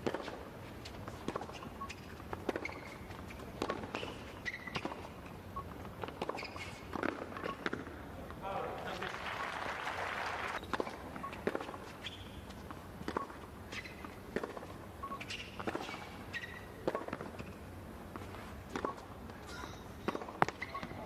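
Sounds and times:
racket hitting tennis ball: 0:00.0 - 0:05.2, 0:05.9 - 0:07.9, 0:10.6 - 0:11.9, 0:13.0 - 0:19.4, 0:20.0 - 0:20.9
shoes squeaking on court: 0:00.0 - 0:08.4, 0:10.6 - 0:21.0
tennis ball bouncing: 0:00.0 - 0:08.4, 0:10.6 - 0:21.0.

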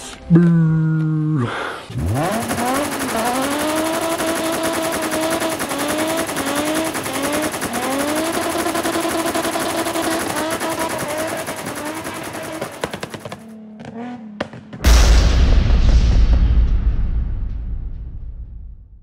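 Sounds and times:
car engine revving: 0:01.9 - 0:14.8
rapid engine pops: 0:01.9 - 0:15.6.

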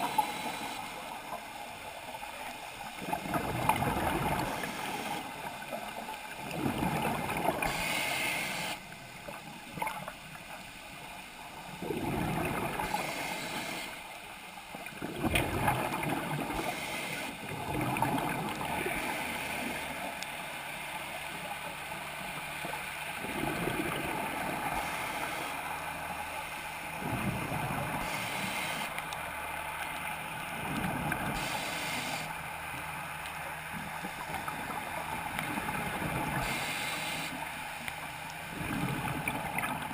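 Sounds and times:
regulator inhale hiss: 0:00.0 - 0:01.4, 0:04.3 - 0:05.4, 0:07.6 - 0:09.0, 0:12.8 - 0:14.2, 0:16.5 - 0:17.4, 0:24.6 - 0:25.8, 0:27.9 - 0:29.0, 0:31.3 - 0:32.5, 0:36.3 - 0:37.9
exhaust bubbles underwater: 0:03.0 - 0:04.8, 0:06.4 - 0:07.9, 0:11.7 - 0:13.2, 0:14.9 - 0:19.2, 0:23.2 - 0:24.9, 0:38.5 - 0:39.9.

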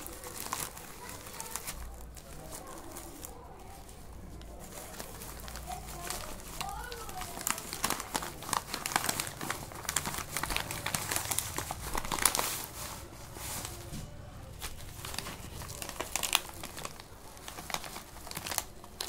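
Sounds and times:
plastic mailer tearing and crinkling: 0:00.0 - 0:19.0
plastic packaging rustling: 0:00.0 - 0:19.0.

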